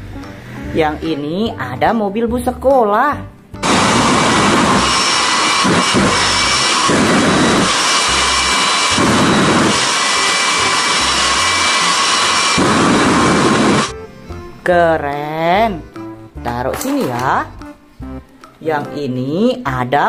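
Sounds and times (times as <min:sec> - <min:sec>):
jet engine roaring with turbine whine: 0:03.6 - 0:13.9.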